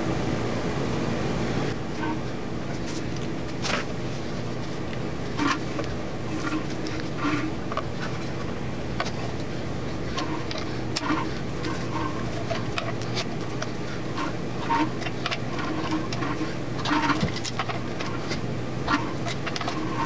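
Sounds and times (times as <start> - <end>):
steady low hum: 0.0 - 20.0
hand tools clicking on metal: 5.4 - 20.0.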